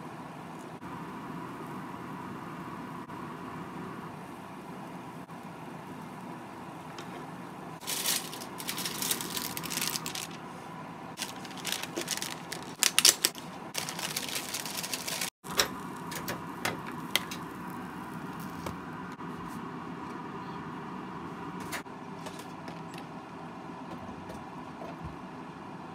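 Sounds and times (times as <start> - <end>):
steady background hum: 0.0 - 25.9
packaging clicking and rustling: 7.8 - 10.4, 11.2 - 15.4.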